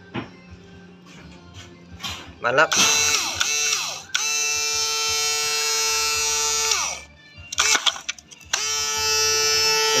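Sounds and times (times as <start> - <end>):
electric pump whining: 2.7 - 10.0.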